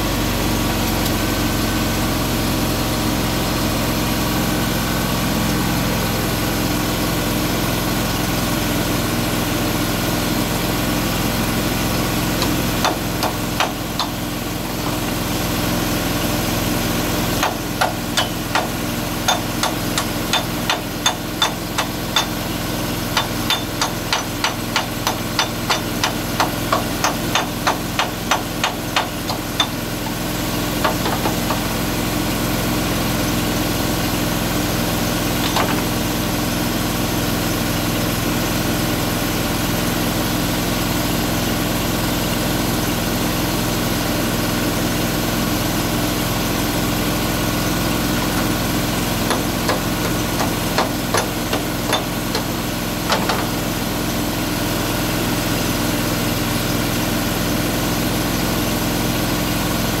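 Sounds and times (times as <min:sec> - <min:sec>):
engine running: 0:00.0 - 1:00.0
sharp knocks: 0:30.8 - 0:31.6.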